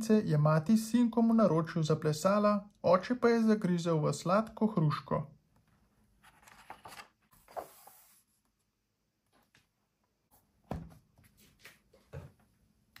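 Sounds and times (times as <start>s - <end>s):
book pages swishing: 6.2s - 8.3s
book thump and taps: 10.7s - 11.0s.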